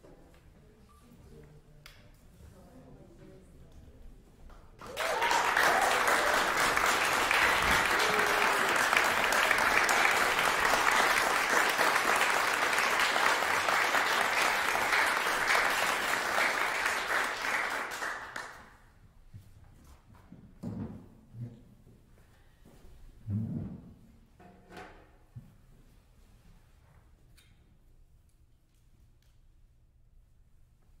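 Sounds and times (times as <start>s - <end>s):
audience applauding: 4.8s - 18.7s.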